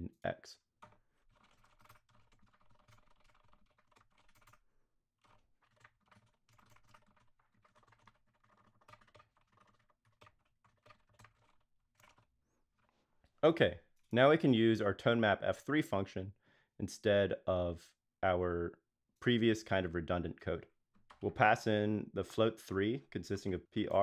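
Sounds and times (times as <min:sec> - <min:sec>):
faint keyboard typing: 0:00.8 - 0:04.6, 0:05.2 - 0:13.0, 0:21.0 - 0:21.5.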